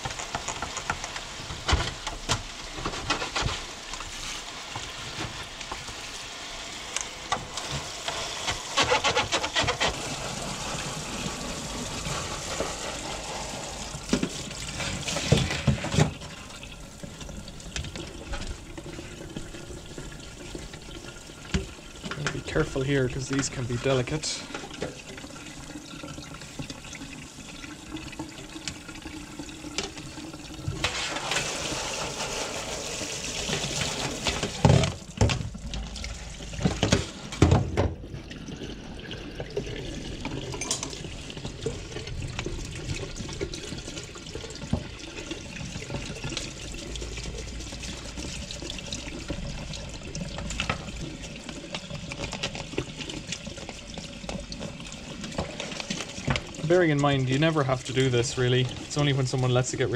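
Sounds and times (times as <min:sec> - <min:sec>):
plastic filter being scrubbed: 0:00.0 - 0:06.2, 0:07.4 - 0:16.5, 0:30.6 - 0:37.5, 0:41.0 - 0:59.9.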